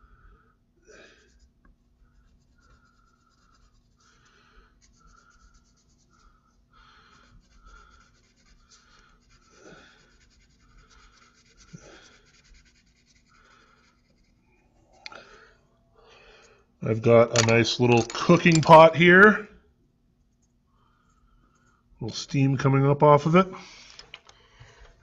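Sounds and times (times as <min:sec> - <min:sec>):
pencil scratching on paper: 0:01.0 - 0:15.0.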